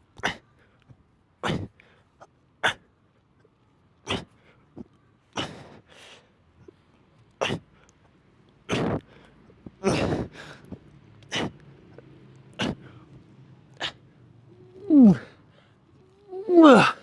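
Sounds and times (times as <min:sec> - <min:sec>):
man grunting: 0:14.8 - 0:15.3, 0:16.3 - 0:17.0.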